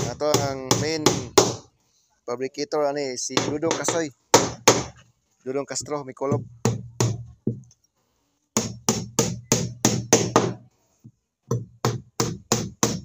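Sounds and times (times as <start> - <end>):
hammer driving nails into wood: 0.0 - 1.6, 3.4 - 5.0, 8.6 - 10.6, 11.5 - 13.0.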